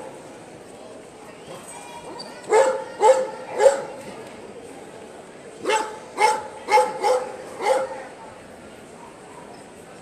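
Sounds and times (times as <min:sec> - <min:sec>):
dog barking: 0:02.5 - 0:03.9, 0:05.6 - 0:08.0.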